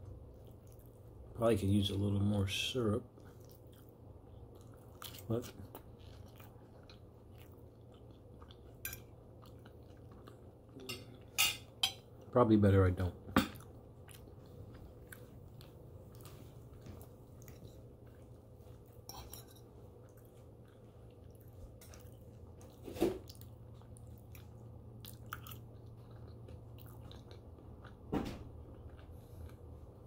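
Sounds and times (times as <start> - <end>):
close chewing with wet mouth clicks: 3.1 - 10.8, 13.6 - 19.0, 19.8 - 28.0.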